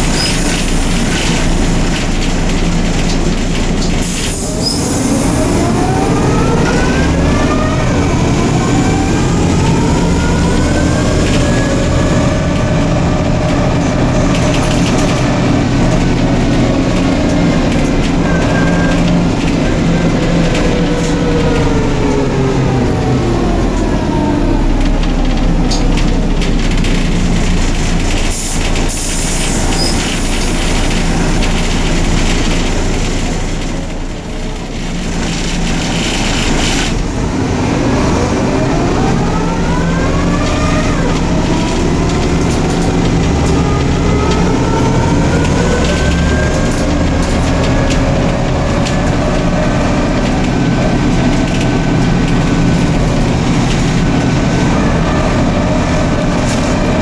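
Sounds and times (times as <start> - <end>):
bus engine and transmission whine: 0.0 - 57.0.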